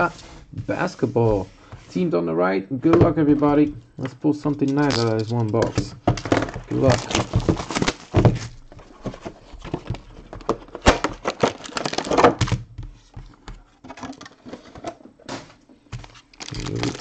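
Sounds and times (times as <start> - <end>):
plastic wrap tearing and crinkling: 4.6 - 9.0, 10.0 - 12.6, 16.0 - 17.0
box knocks: 5.6 - 8.7.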